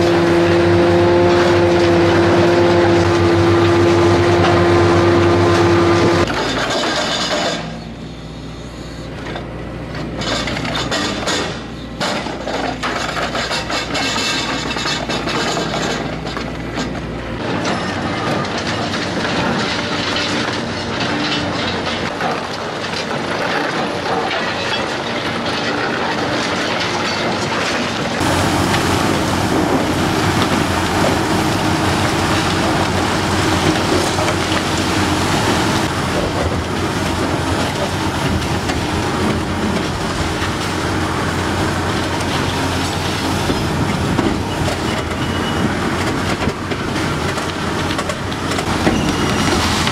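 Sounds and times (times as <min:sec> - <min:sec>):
excavators running: 0:00.0 - 0:49.9
concrete cracking and grinding: 0:10.2 - 0:45.4.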